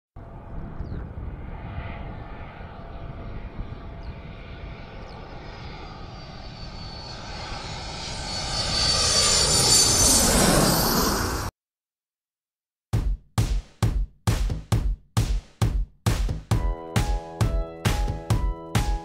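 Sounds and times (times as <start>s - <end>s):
jet engines rumbling and whining: 0.2s - 11.5s.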